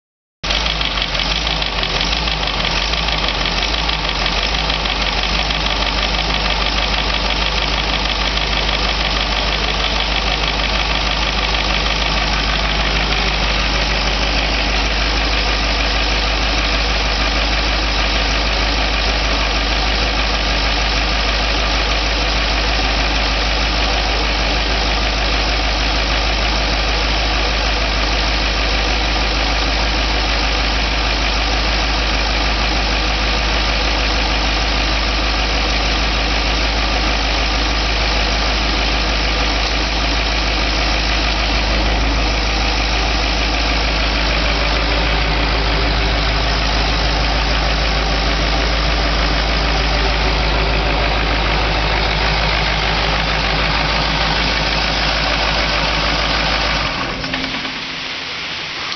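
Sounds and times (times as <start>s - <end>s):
diesel engine running unmuffled: 0.4s - 58.9s.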